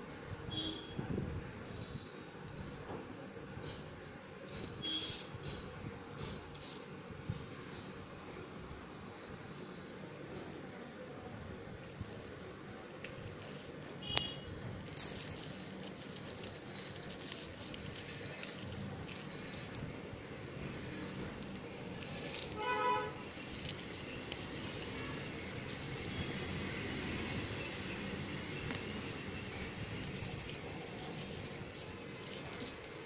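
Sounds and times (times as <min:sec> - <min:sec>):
slate pencil crunching: 0:09.4 - 0:19.9, 0:20.9 - 0:33.0
plastic sheet crinkling: 0:09.6 - 0:19.9, 0:20.8 - 0:33.0.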